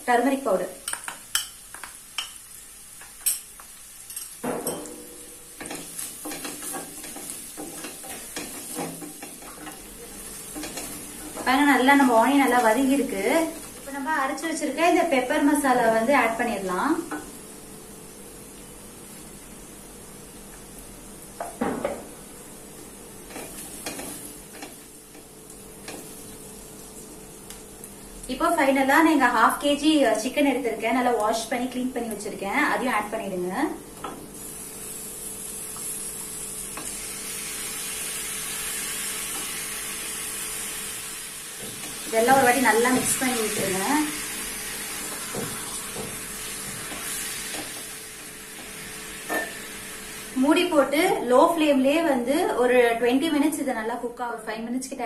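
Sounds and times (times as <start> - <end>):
onions sizzling in oil: 0.0 - 54.0
spatula scraping a frying pan: 5.6 - 11.5.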